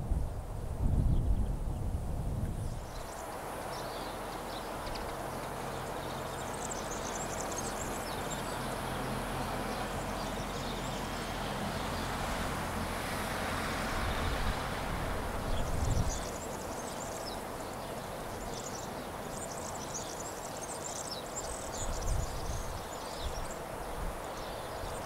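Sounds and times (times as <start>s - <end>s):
low engine hum: 0.0s - 25.0s.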